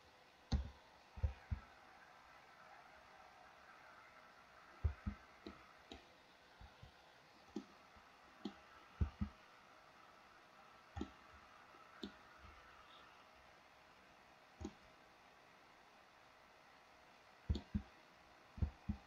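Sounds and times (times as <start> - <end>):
faint steady hiss: 0.0 - 19.0
keyboard and mouse clicks: 0.5 - 1.6, 4.8 - 7.8, 8.4 - 9.4, 10.9 - 11.3, 12.0 - 12.3, 14.6 - 14.9, 17.5 - 17.9, 18.6 - 19.0.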